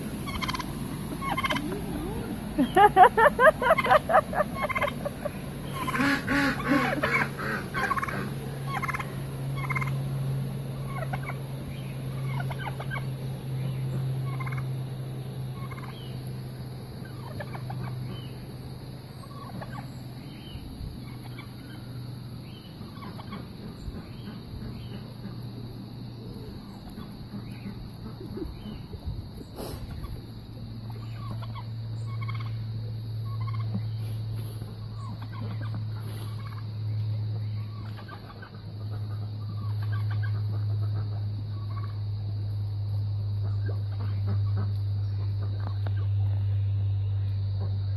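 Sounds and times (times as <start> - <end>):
steady low hum: 0.0 - 47.9
turkey gobbling: 0.2 - 10.0, 10.9 - 11.4, 12.2 - 13.1, 14.2 - 14.7, 15.6 - 16.1, 17.0 - 18.3, 19.2 - 19.8, 21.0 - 21.8, 22.8 - 25.4, 30.8 - 32.6, 33.2 - 33.8, 35.0 - 36.7, 37.4 - 42.0, 43.4 - 44.8.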